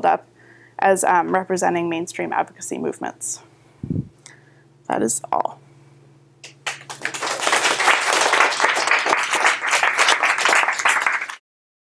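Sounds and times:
audience applauding: 6.4s - 11.4s.

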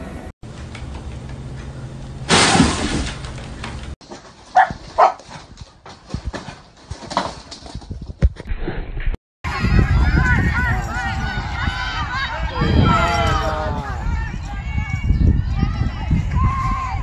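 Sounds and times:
small dogs yipping and barking: 4.6s - 5.2s.

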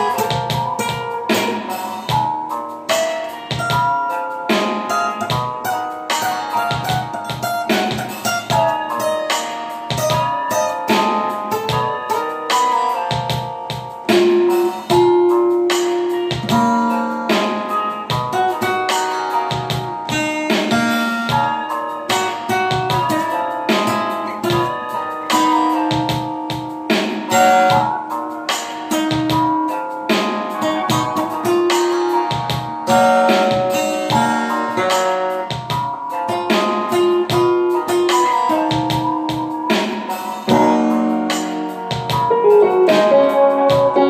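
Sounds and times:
acoustic guitar plucked: 0.0s - 44.0s.

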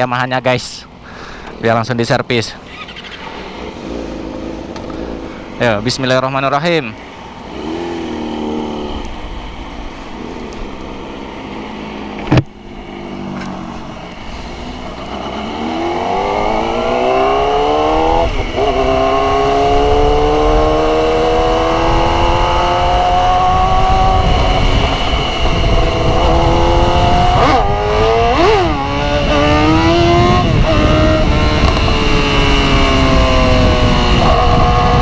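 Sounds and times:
motorcycle engine accelerating: 2.7s - 6.0s, 7.2s - 35.0s
wind rumble on microphone: 15.2s - 35.0s.

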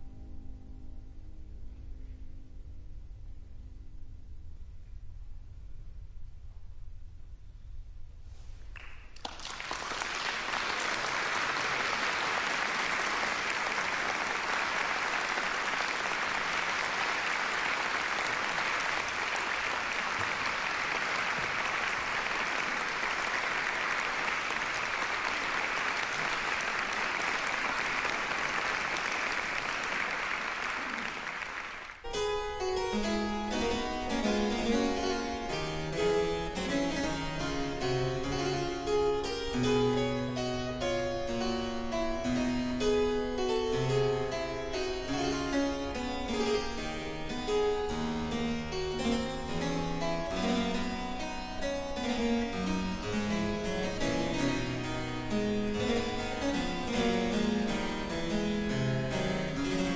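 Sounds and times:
audience applauding: 8.8s - 32.0s
harpsichord playing: 32.1s - 59.9s.

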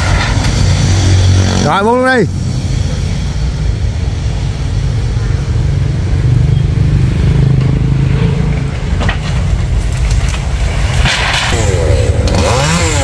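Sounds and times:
chainsaw engine running: 11.6s - 13.0s.

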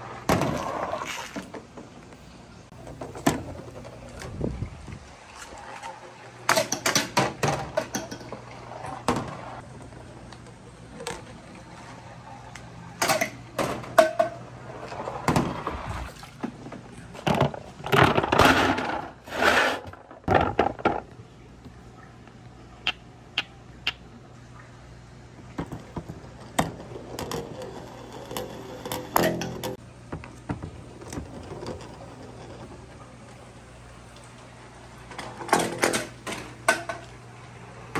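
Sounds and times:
toy balls rolling through plastic pipe: 25.6s - 29.8s.

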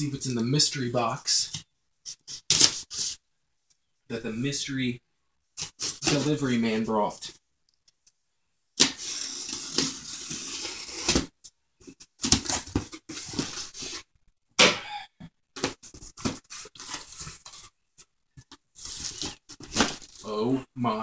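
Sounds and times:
knife slicing packing tape: 8.8s - 11.2s
cardboard rustling and crackling: 8.9s - 14.1s, 15.6s - 20.3s.

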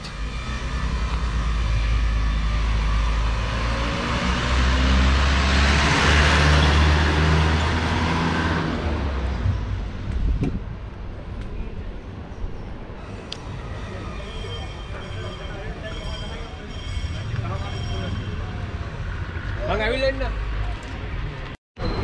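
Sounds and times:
vehicle passing by: 0.3s - 9.8s.

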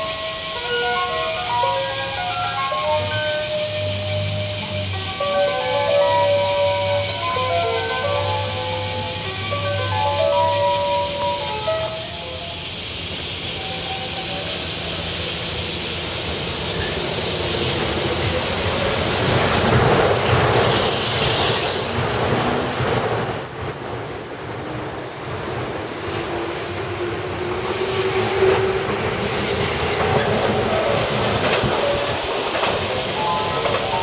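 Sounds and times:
electric train running past: 0.0s - 34.0s
wheels clattering over rail joints: 18.1s - 34.0s.

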